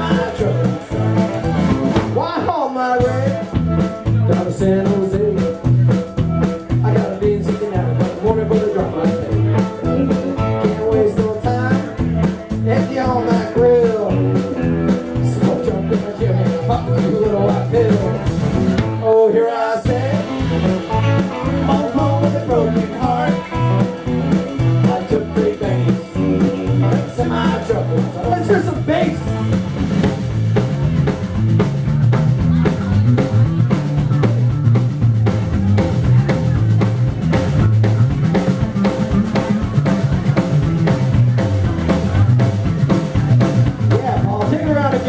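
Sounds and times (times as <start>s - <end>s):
drum beat: 0.0s - 19.0s, 19.9s - 45.0s
electric guitars: 0.0s - 45.0s.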